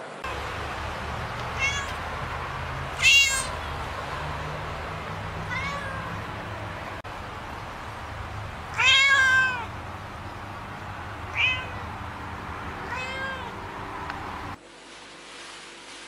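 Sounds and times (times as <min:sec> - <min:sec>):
kitten meowing: 0:01.5 - 0:02.0, 0:03.0 - 0:03.6, 0:05.4 - 0:06.2, 0:08.7 - 0:09.7, 0:11.3 - 0:11.9, 0:12.9 - 0:13.5.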